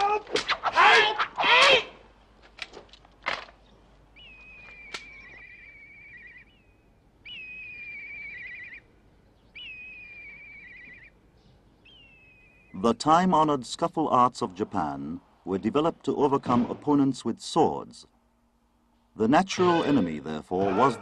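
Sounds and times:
kite whistled calls: 4.2 - 6.5.

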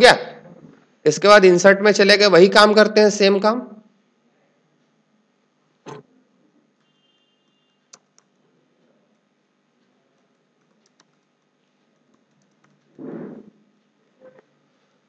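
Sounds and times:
keyboard typing: 10.2 - 13.0
muffled noise: 13.0 - 14.5.

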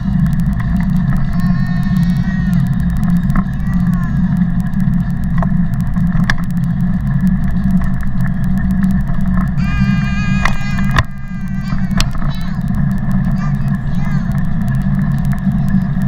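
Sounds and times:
child's high-pitched voice: 1.2 - 2.8, 3.4 - 4.6, 9.6 - 14.5.

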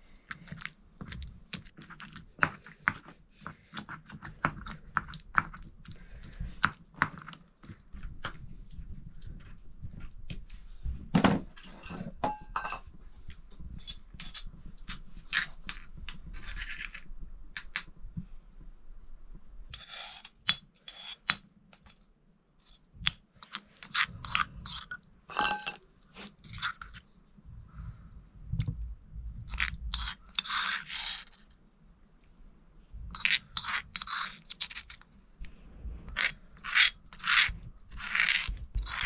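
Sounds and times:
metal spoon scraping stone: 19.7 - 21.3, 29.6 - 31.4, 33.1 - 35.0, 36.1 - 39.0
stone pestle mashing on stone: 36.1 - 39.0.

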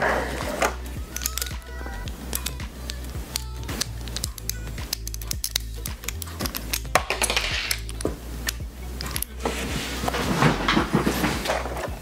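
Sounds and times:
rustling handling noise: 0.0 - 12.0
plastic figure pieces clicking: 0.6 - 9.4.

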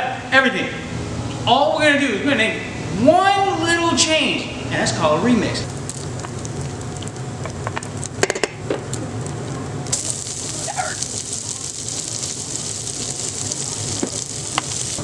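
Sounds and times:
bacon sizzling in a pan: 5.7 - 8.2, 9.2 - 15.0
fat popping: 9.9 - 15.0.

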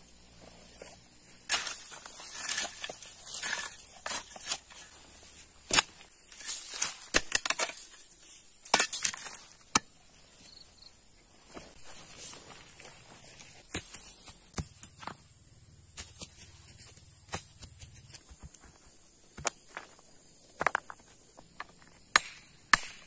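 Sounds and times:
dirt thrown aside: 0.4 - 9.9
spade chopping into stony soil: 1.5 - 5.0, 5.6 - 8.0, 8.6 - 10.0, 13.7 - 15.2, 22.1 - 23.0.

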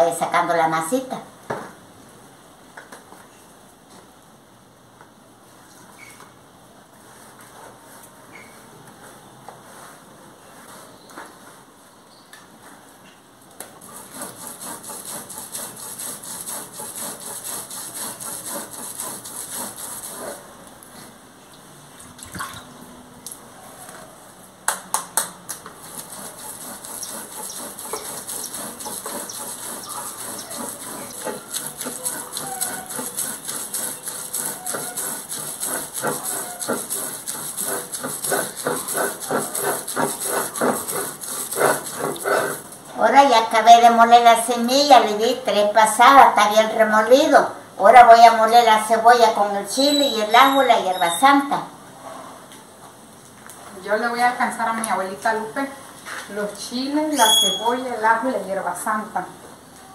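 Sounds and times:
stone grinding on stone: 13.8 - 20.4, 25.8 - 42.7.

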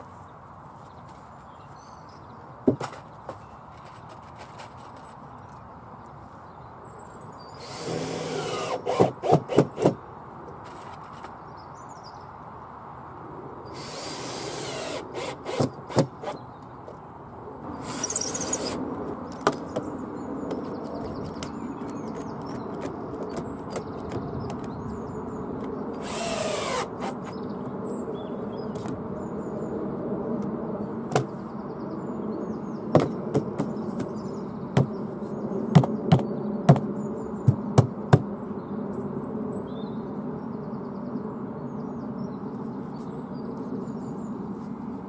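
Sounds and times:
cordless drill whirring: 7.6 - 9.9, 13.8 - 16.3, 17.8 - 18.8, 26.0 - 27.3.

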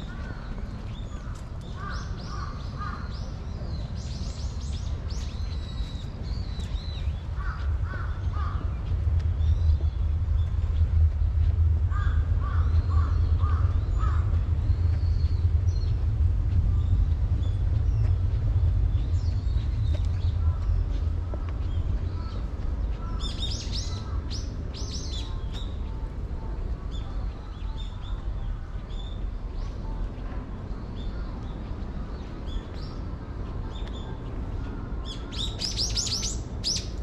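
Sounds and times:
small birds chirping: 0.0 - 37.0
steady low rumble: 0.0 - 37.0
crows cawing: 7.4 - 8.7, 11.9 - 14.3.

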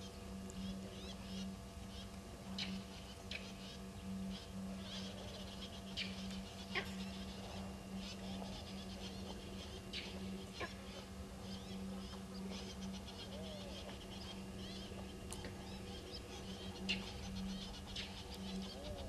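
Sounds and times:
birds calling: 0.0 - 19.0
steady low hum: 0.0 - 19.0
bird chattering: 4.8 - 19.0.

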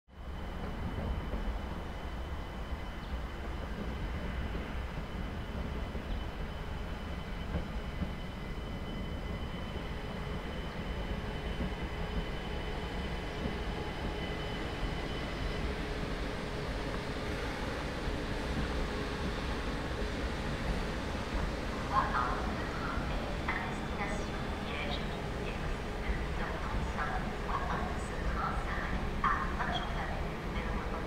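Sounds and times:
train rumble: 0.2 - 31.0.

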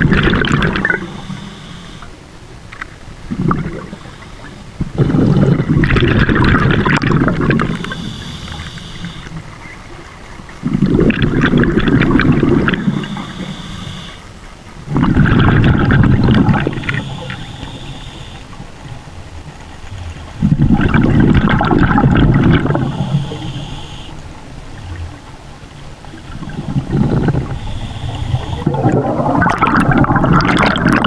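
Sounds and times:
exhaled bubbles underwater: 0.0 - 2.1, 3.2 - 14.2, 14.8 - 31.0
regulator hiss: 0.8 - 2.2, 3.7 - 4.7, 6.9 - 9.6, 12.2 - 14.4, 16.4 - 18.7, 22.6 - 24.4, 25.8 - 29.0.

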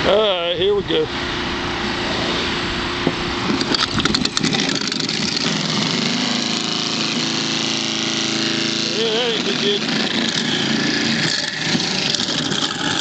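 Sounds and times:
garbage disposal humming: 2.7 - 13.0.

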